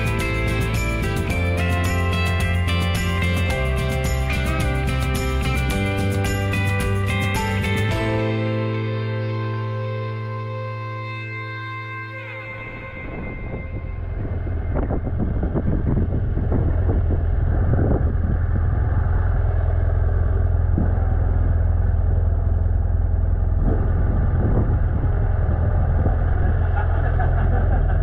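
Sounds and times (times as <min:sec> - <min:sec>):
motorcycle engine rumbling: 0:12.6 - 0:28.0.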